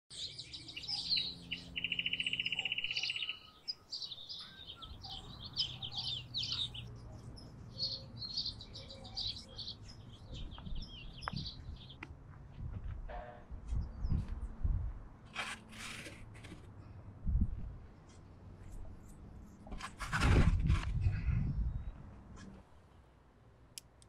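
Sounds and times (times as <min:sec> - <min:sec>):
small birds chirping: 0:00.1 - 0:12.0.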